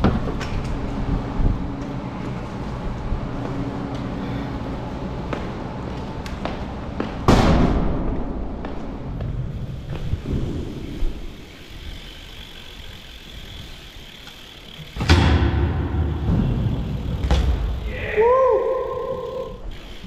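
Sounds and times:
bike tyres rolling on concrete: 0.0 - 20.0
bike hitting metal rail: 14.2 - 17.9.

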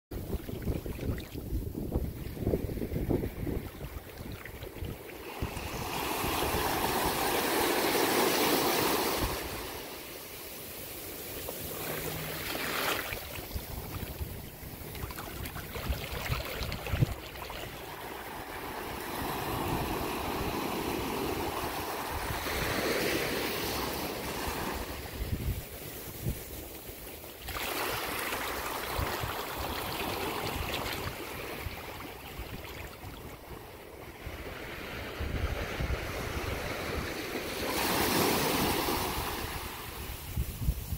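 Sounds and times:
wind buffeting microphone: 0.1 - 9.7, 11.6 - 22.9, 24.7 - 26.6, 34.2 - 37.4, 38.3 - 40.9
small waves washing on shore: 0.2 - 40.9.

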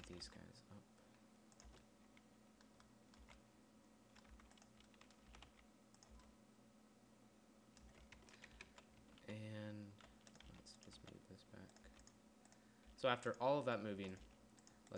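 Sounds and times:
low steady hum: 0.0 - 14.9
keyboard keys clicking: 1.5 - 3.4, 4.2 - 6.3, 7.8 - 9.3, 10.0 - 14.9.

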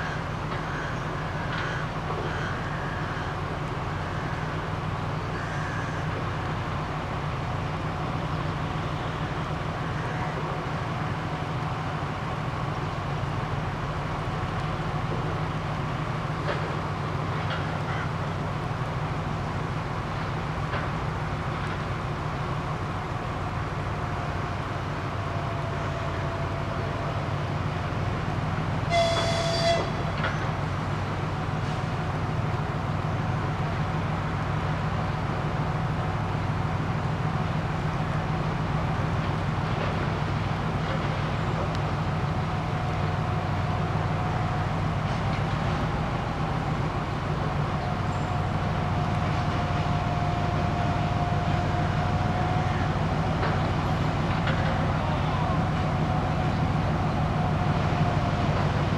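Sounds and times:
diesel locomotive engine throbbing: 0.0 - 58.9
locomotive horn toot: 5.3 - 6.1, 28.9 - 30.2.

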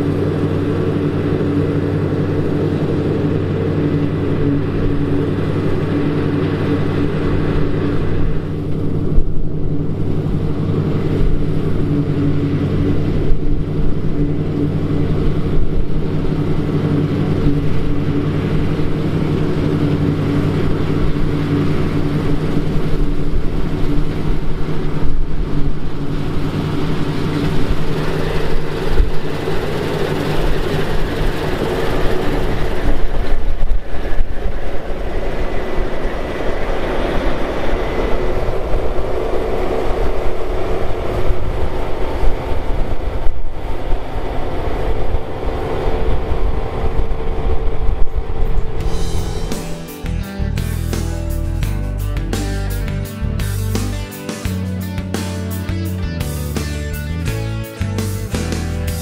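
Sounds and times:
combine harvester droning: 0.0 - 59.0.

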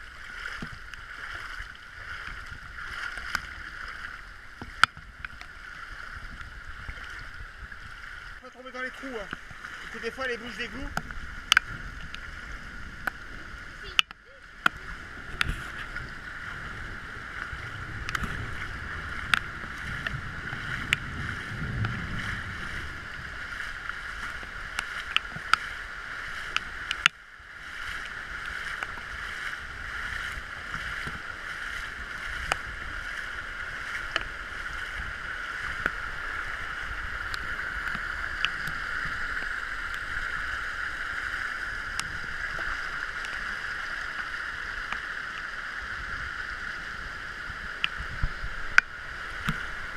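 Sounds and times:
flowing floodwater: 0.0 - 49.9
raindrops tapping camera: 8.7 - 27.2, 27.9 - 34.4.

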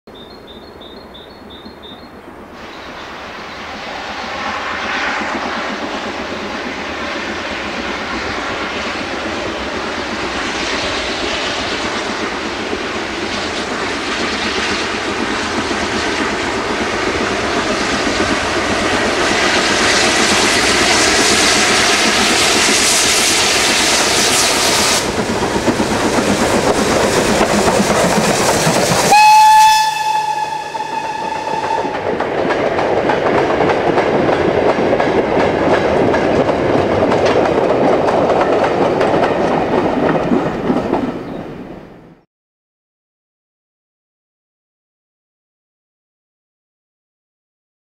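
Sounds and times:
steam locomotive exhaust: 2.5 - 32.4
steam whistle blast: 29.0 - 32.0.

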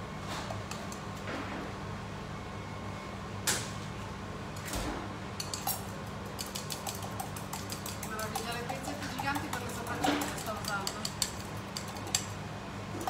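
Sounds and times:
fork beating egg in bowl: 5.4 - 12.4.

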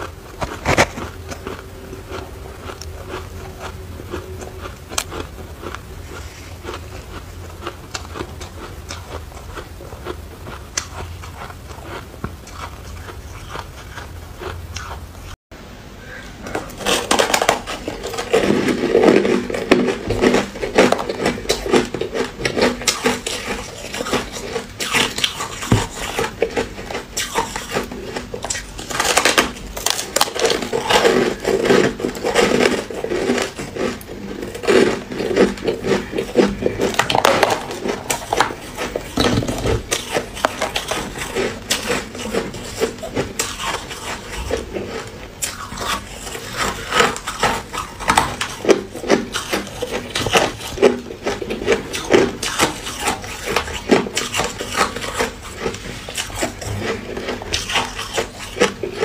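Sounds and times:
ice crunching between teeth: 0.0 - 15.0, 16.7 - 59.0.

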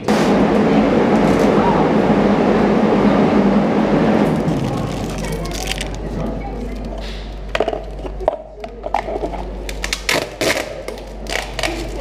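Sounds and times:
plastic cups and tape crackling: 4.4 - 12.0.

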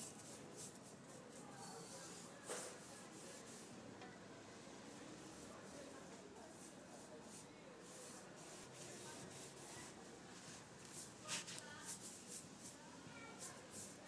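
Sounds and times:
paintbrush swishing on wood: 0.0 - 3.8, 5.2 - 14.0.

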